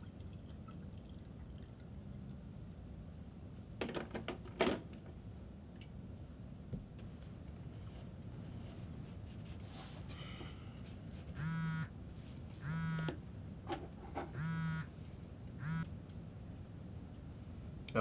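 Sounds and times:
phone buzzing: 11.4s - 11.9s, 12.6s - 13.2s, 14.3s - 14.9s, 15.6s - 15.9s.

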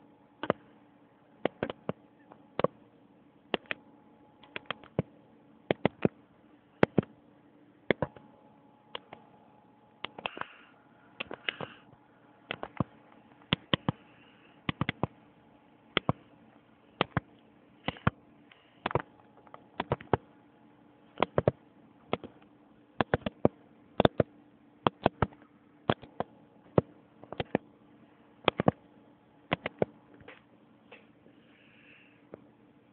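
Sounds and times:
faint steady hum: 0.0s - 32.9s
sharp clicks and taps: 0.4s - 0.6s, 1.4s - 2.0s, 2.6s - 2.8s, 4.4s - 5.1s, 5.7s - 6.2s, 12.5s - 14.0s, 14.7s - 15.1s, 17.0s - 17.3s, 18.8s - 20.2s, 21.2s - 22.4s, 23.0s - 24.3s, 24.9s - 27.6s, 28.5s - 28.8s, 29.5s - 31.0s.

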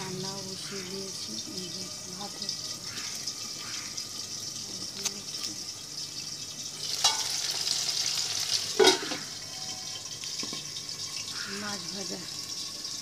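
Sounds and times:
fish sizzling in oil: 0.0s - 13.0s
steel lid clanking on pan: 6.9s - 7.6s, 8.6s - 9.8s.

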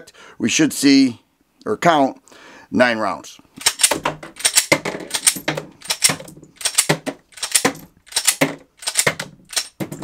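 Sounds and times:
pistol slide racking clack: 3.6s - 10.0s.

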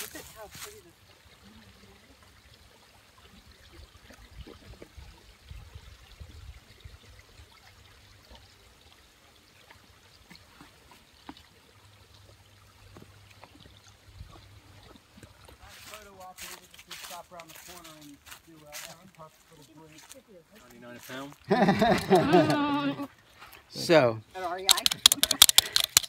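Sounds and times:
footsteps on wooden boardwalk: 15.2s - 21.5s.

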